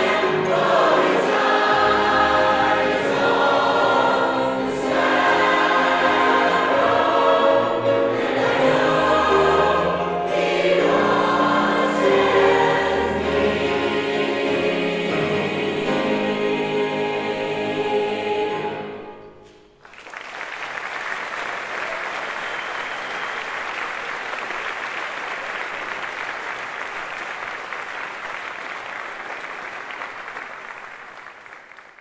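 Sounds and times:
choir holding final chord: 0.0 - 19.5
audience applause: 19.8 - 32.0.

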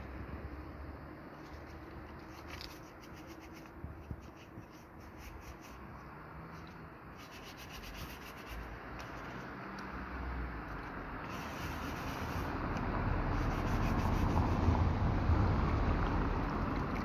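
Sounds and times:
faint traffic hum: 0.0 - 17.0
wallet being scrubbed: 1.5 - 5.9, 7.2 - 9.4, 11.3 - 12.6, 13.3 - 14.6.

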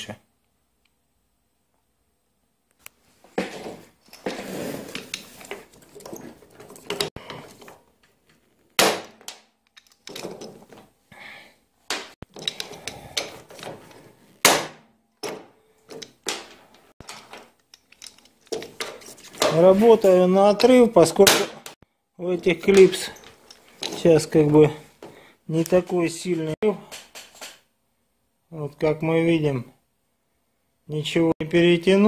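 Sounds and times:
tools clattering on metal bench: 3.4 - 8.4, 9.2 - 10.9, 11.9 - 14.2, 15.2 - 21.8, 22.6 - 24.5.

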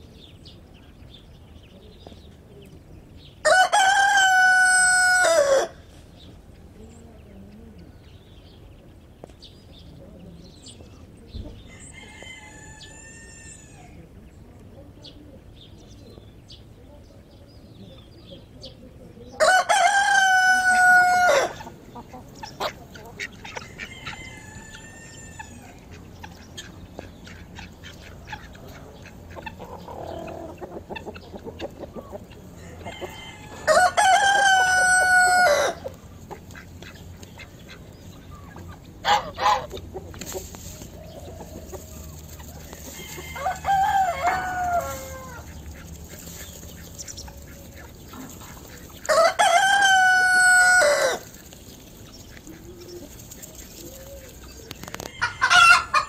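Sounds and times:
rooster crowing: 3.4 - 5.8, 11.7 - 13.8, 19.4 - 21.6, 23.8 - 25.6, 32.6 - 35.9, 42.9 - 45.5, 49.1 - 51.3, 55.0 - 56.0
hens clucking softly: 19.6 - 56.0.

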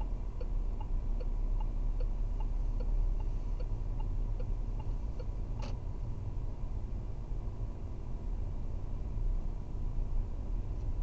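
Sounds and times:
faint steady tone: 0.0 - 6.8
car engine and tyres rumbling: 0.0 - 11.0.

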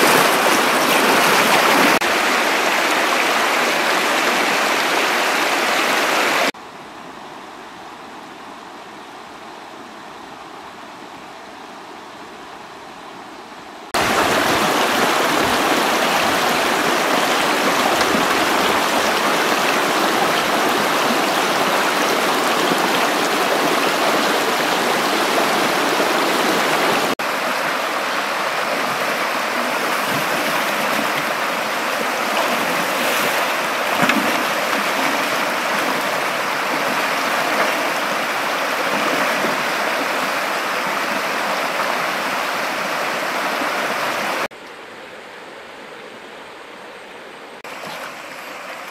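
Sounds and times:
river rapids rushing over rocks: 0.0 - 6.5, 14.0 - 44.5.

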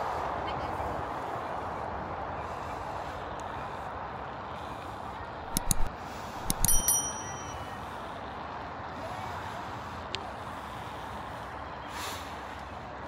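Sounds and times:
bicycle tyres on pavement: 0.1 - 5.4, 6.0 - 13.0
sharp metallic clicks: 5.4 - 7.6
bicycle bell ringing: 5.4 - 8.0.

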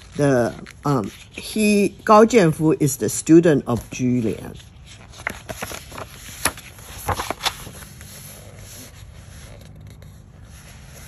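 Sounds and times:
book pages turning: 0.0 - 2.7, 3.3 - 11.0.

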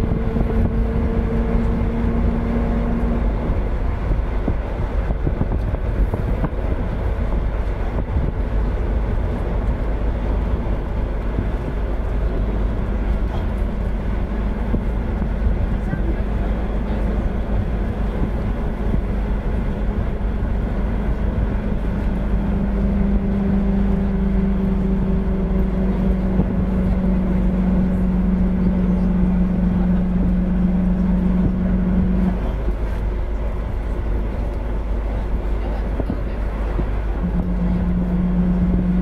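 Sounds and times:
bus engine rumble: 0.0 - 39.0
steady hum: 0.0 - 39.0.

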